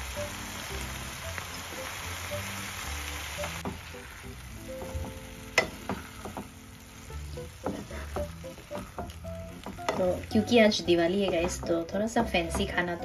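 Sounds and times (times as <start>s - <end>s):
sauce sizzling in a pan: 0.0s - 13.0s
spatula scraping and knocking pan: 4.8s - 6.6s, 7.6s - 12.9s.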